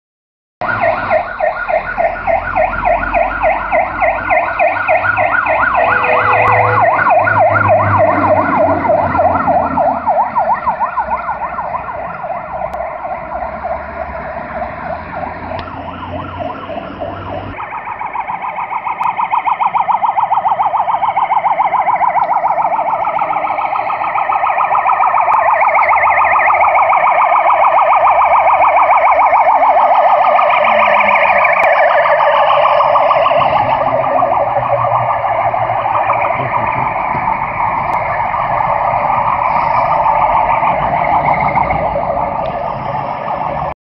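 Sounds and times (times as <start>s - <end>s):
fire engine siren wailing: 0.6s - 43.8s.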